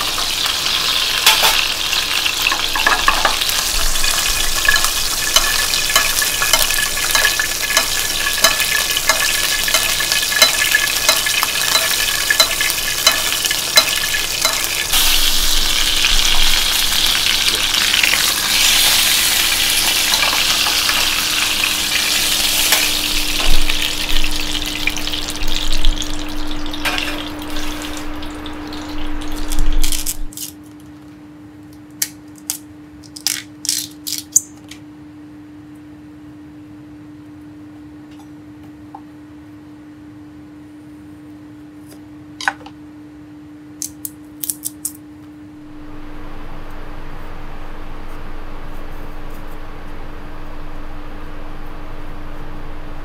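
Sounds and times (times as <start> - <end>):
meat sizzling in a frying pan: 0.0 - 30.3
steady low hum: 0.0 - 33.1, 45.0 - 53.0.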